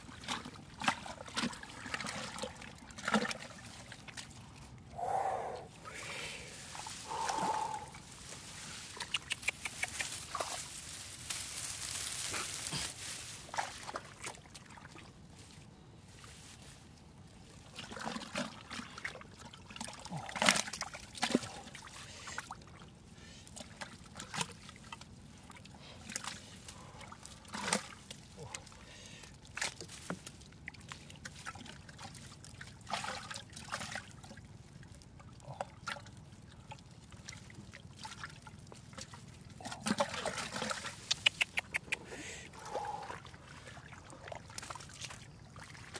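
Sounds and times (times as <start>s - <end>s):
shallow water splashing: 42.5s - 45.9s.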